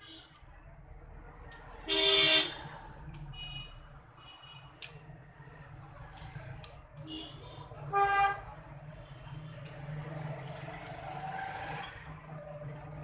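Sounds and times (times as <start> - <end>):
vehicle horns honking: 1.9 - 2.6.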